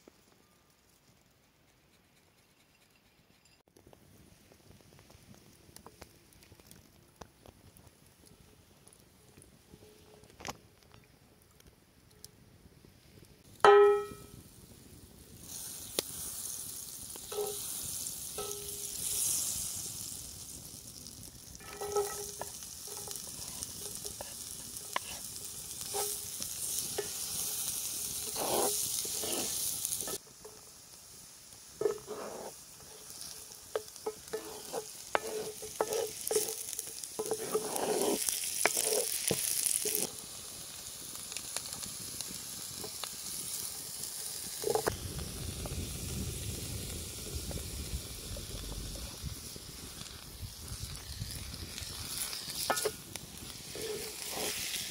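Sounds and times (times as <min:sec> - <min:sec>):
onion sizzling in skillet: 0:13.4 - 0:54.9
wooden spatula scraping pan: 0:17.3 - 0:17.6, 0:21.6 - 0:30.6, 0:31.8 - 0:40.1, 0:52.3 - 0:53.0, 0:53.6 - 0:54.9.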